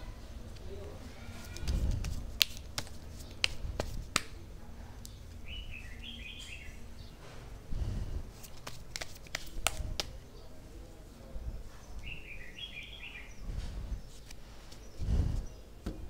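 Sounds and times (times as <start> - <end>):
cards clicking and tapping: 1.4 - 4.4, 8.4 - 10.2
bird chirping: 5.1 - 7.2, 11.7 - 16.0.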